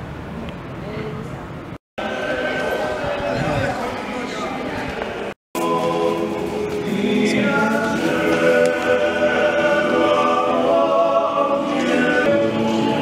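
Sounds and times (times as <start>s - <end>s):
vocal group singing in harmony: 2.0s - 3.9s, 4.9s - 13.0s.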